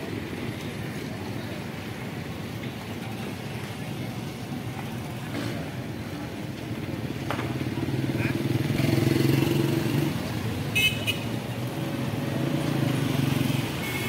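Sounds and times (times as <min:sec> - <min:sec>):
street traffic rumble: 0:00.0 - 0:14.0
vehicle engine running close by: 0:07.2 - 0:10.6.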